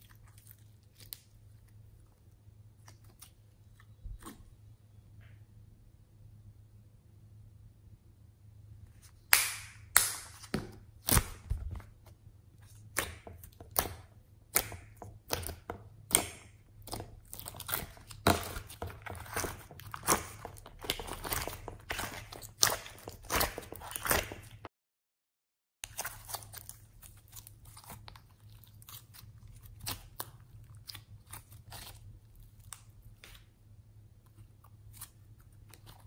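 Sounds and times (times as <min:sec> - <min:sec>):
slime squelching: 0:00.0 - 0:04.6, 0:08.9 - 0:24.7, 0:25.8 - 0:36.0
slime crackling and popping: 0:12.8 - 0:24.7.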